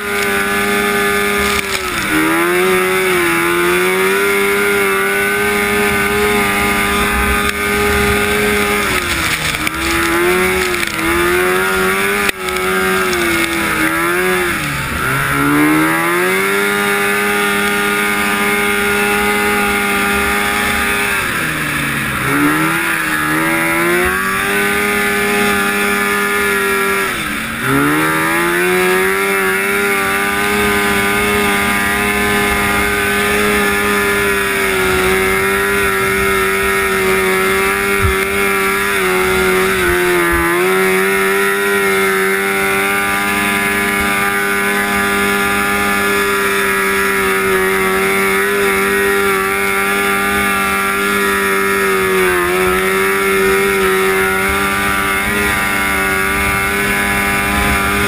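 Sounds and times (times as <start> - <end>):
snowmobile engine revving: 0.0 - 58.0.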